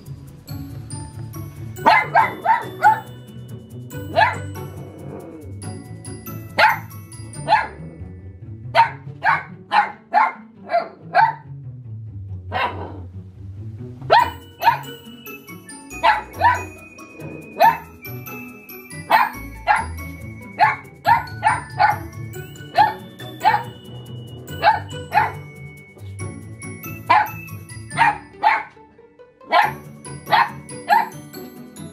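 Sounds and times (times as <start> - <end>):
background music: 0.0 - 31.9
puppy barking: 1.8 - 3.1, 4.1 - 5.2, 6.6 - 7.8, 8.8 - 11.5, 12.5 - 13.0, 14.1 - 15.0, 15.9 - 17.9, 19.1 - 20.0, 20.6 - 22.1, 22.7 - 23.7, 24.6 - 25.4, 27.1 - 28.8, 29.5 - 31.2.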